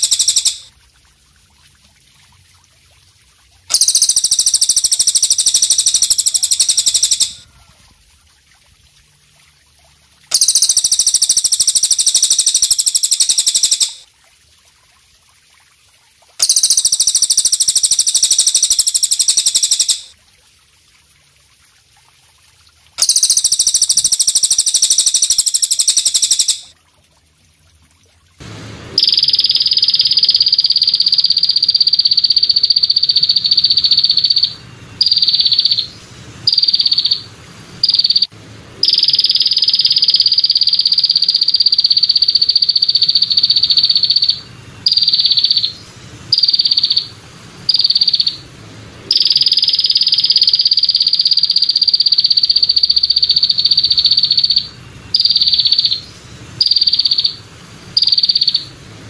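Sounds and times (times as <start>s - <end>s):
katydid buzzing trill: 0.0s - 0.7s, 3.7s - 7.4s, 10.3s - 14.0s, 23.0s - 26.6s, 29.0s - 35.9s, 49.1s - 57.4s, 58.0s - 58.7s.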